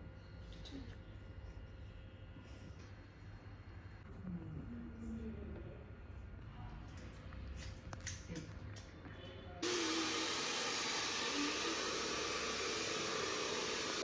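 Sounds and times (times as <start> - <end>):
hair dryer blowing: 9.6 - 14.0.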